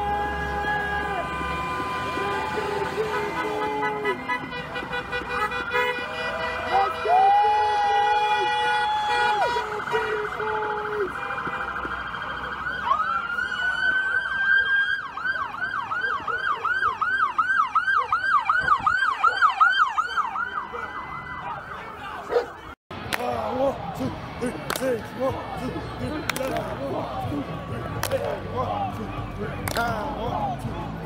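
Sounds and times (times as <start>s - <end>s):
vehicle horn blasts: 1.0s - 9.9s, 10.8s - 11.8s
police siren wailing and yelping: 7.1s - 22.8s.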